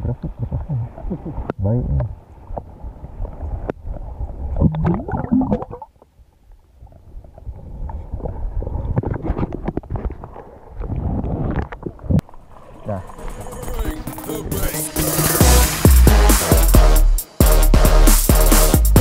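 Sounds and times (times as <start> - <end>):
muffled underwater gurgling: 0.0 - 2.2, 3.4 - 5.9, 6.9 - 14.6.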